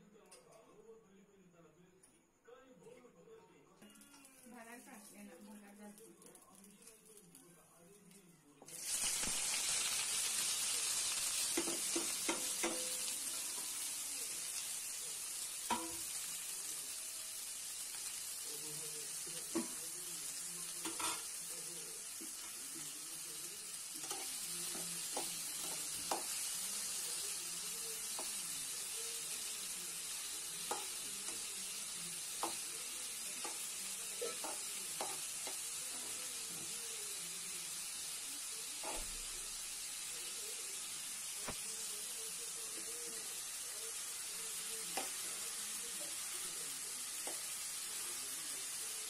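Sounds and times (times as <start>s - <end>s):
onions sizzling in a pan: 3.8s - 49.0s
spatula scraping a pan: 38.8s - 39.2s.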